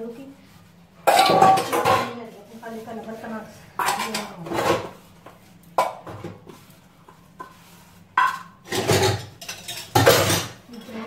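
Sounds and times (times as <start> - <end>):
steel utensils clanking: 8.2 - 11.0.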